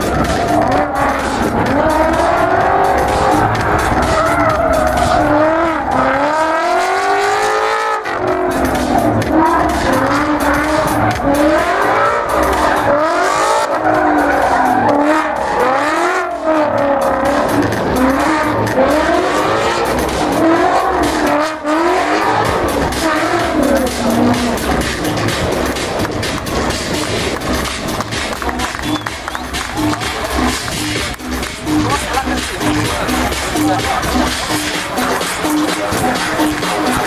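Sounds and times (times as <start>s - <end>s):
tyres screeching: 0.0s - 7.2s, 8.2s - 28.0s
car engine revving: 0.0s - 37.0s
thumping music beat: 0.0s - 37.0s.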